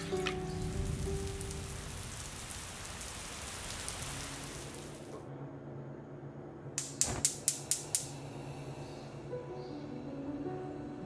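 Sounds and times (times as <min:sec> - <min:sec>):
rain falling: 0:00.0 - 0:05.2
gas stove igniter clicking: 0:06.8 - 0:08.1.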